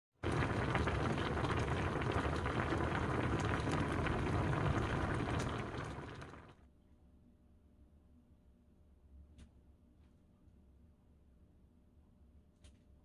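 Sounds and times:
sauce bubbling at a simmer: 0:00.2 - 0:06.6.

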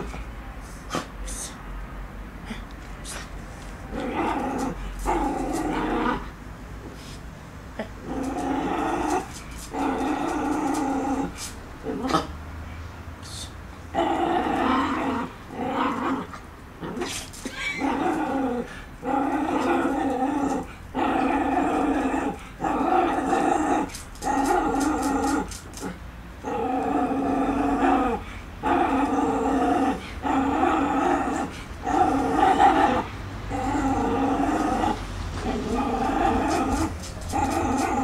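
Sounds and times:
small dog growling: 0:03.9 - 0:06.4, 0:07.8 - 0:12.3, 0:13.9 - 0:38.0.

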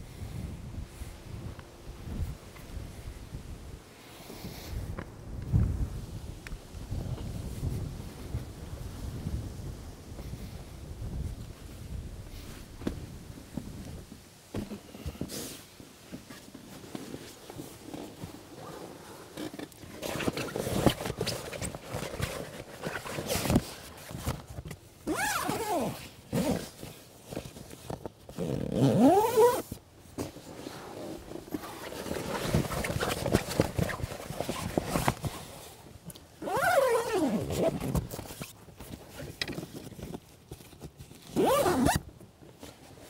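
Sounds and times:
rustling handling noise: 0:11.2 - 0:43.0
zipper pulled: 0:25.0 - 0:27.0, 0:28.3 - 0:29.8, 0:36.4 - 0:38.5, 0:41.3 - 0:42.0.

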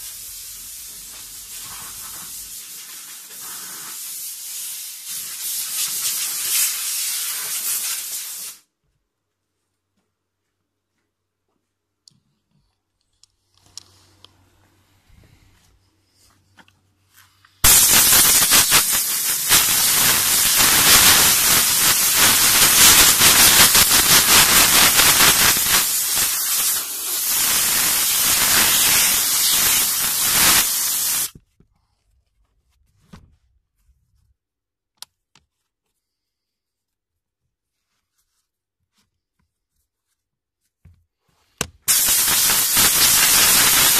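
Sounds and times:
steam cleaner hissing: 0:00.0 - 0:08.6, 0:17.6 - 0:31.3, 0:41.9 - 0:43.9.

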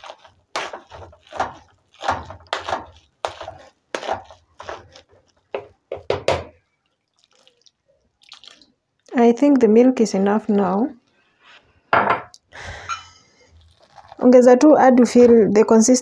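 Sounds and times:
potato masher thudding in pot: 0:05.6 - 0:06.6.

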